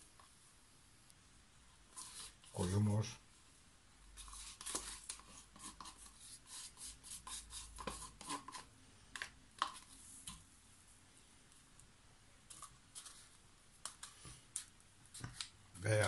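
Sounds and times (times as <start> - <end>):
wooden stick scraping paint cup: 1.9 - 2.8, 4.2 - 10.1, 12.5 - 15.5.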